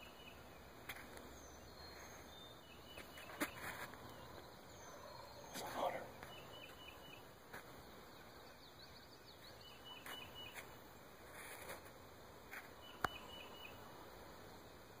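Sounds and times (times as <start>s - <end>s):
faint high bird chirps: 0.0s - 0.7s, 1.3s - 7.3s, 8.1s - 10.7s, 12.5s - 13.8s
low hiss: 0.0s - 15.0s.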